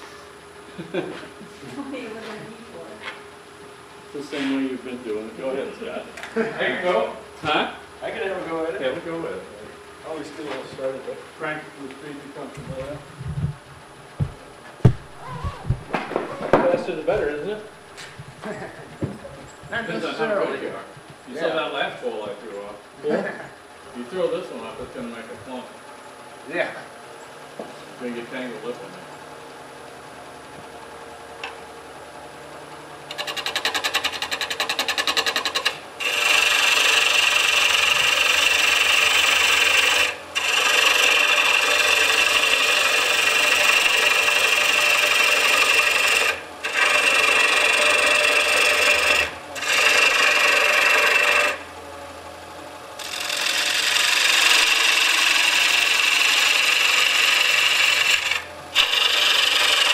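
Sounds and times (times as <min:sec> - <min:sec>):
gouge scraping wood on a lathe: 0:33.1 - 0:51.8, 0:53.0 - 0:59.9.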